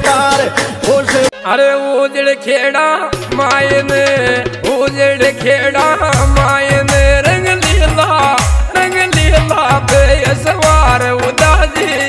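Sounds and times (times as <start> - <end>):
melodic music with beat: 3.1 - 12.0.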